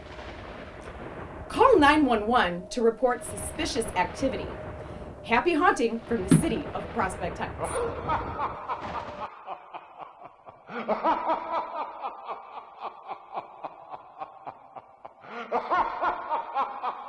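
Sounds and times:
spooky villain laugh: 0:07.6 - 0:17.0.

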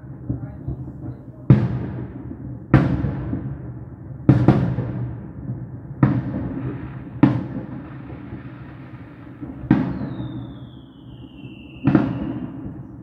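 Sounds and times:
fireworks booming: 0:00.0 - 0:13.0
firework whistle falling in pitch: 0:09.8 - 0:12.8.

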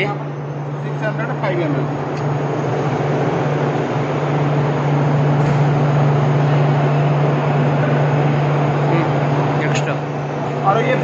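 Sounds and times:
machine humming: 0:00.0 - 0:11.0.

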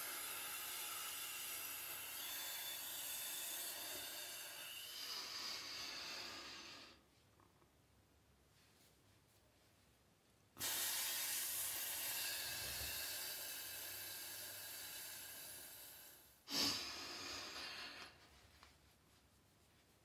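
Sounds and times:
person hissing exhalation: 0:03.6 - 0:07.0, 0:10.6 - 0:18.2.

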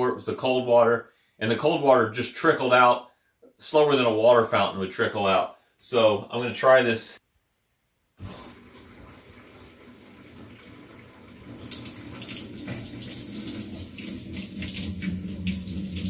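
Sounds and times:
water splashing into washer drum: 0:08.2 - 0:16.0.

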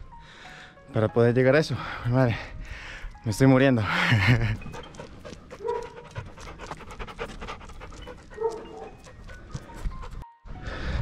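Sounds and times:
dog panting: 0:04.2 - 0:10.2.

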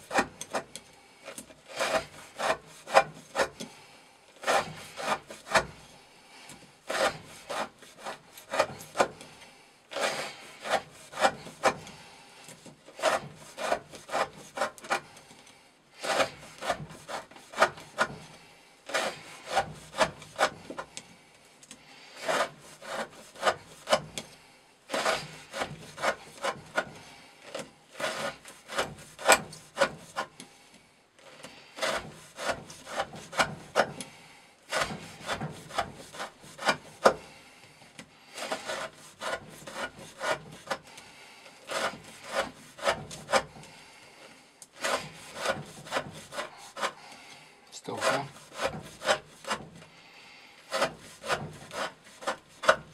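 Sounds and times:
knife shaving wooden stick: 0:00.0 - 0:52.9.

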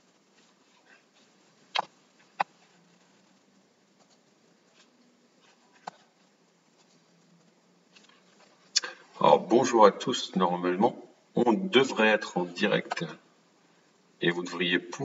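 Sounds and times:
faint room hiss: 0:00.0 - 0:15.0.

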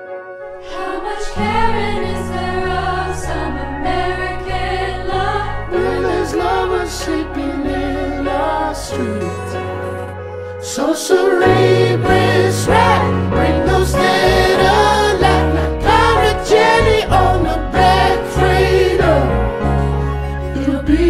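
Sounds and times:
layered singing voices: 0:00.5 - 0:21.0
deep bass line: 0:01.5 - 0:10.3.

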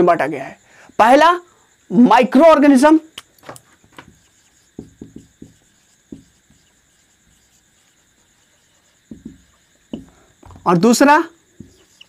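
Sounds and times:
marker writing on whiteboard: 0:03.4 - 0:10.8, 0:11.6 - 0:12.0.

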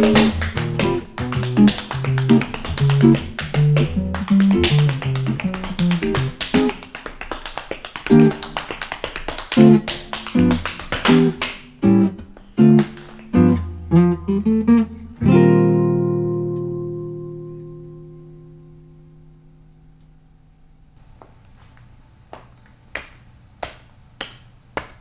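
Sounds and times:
music with plucked low notes: 0:00.0 - 0:06.7, 0:09.6 - 0:20.0
tap shoes on wooden floor: 0:00.0 - 0:11.3, 0:12.7 - 0:13.3.

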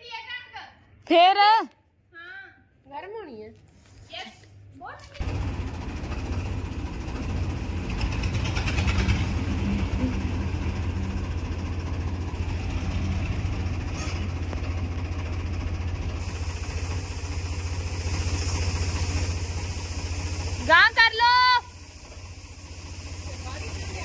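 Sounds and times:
tractor engine running: 0:05.2 - 0:24.0
grain sliding hiss: 0:16.2 - 0:24.0.

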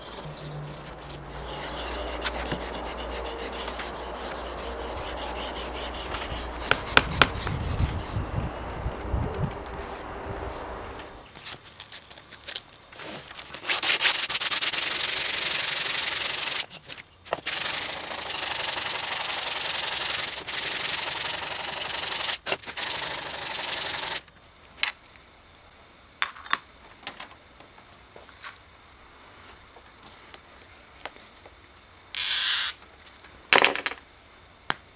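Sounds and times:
sanding sponge rubbing wood: 0:00.0 - 0:08.5, 0:13.7 - 0:16.7, 0:17.4 - 0:24.2.

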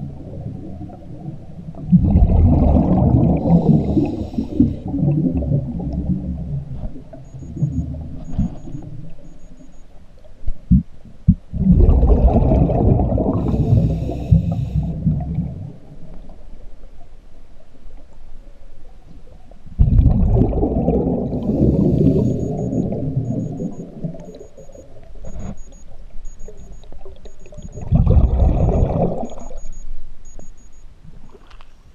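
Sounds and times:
underwater regulator exhalation bubbling: 0:01.8 - 0:08.8, 0:10.7 - 0:15.7, 0:19.8 - 0:25.8, 0:26.4 - 0:29.8.

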